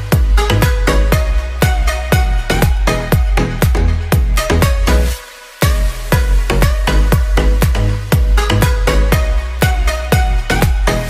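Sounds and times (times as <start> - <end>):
kick drum: 0.0 - 11.0
upbeat electronic music: 0.0 - 11.0.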